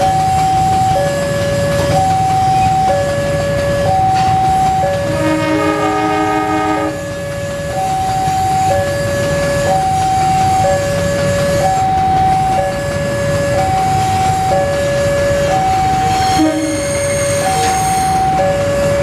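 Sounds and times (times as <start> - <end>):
diesel locomotive rumbling: 0.0 - 19.0
level crossing alarm two tones: 3.8 - 7.1, 13.5 - 18.6
locomotive horn: 5.0 - 7.2, 16.0 - 18.3.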